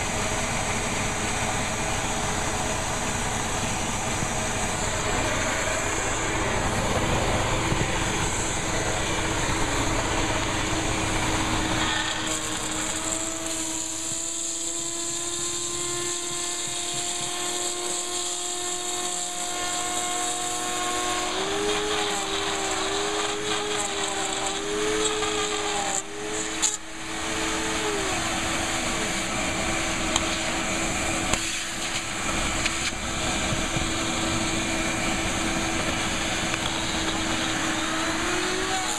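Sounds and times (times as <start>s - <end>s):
router whining while cutting: 0.0s - 38.9s.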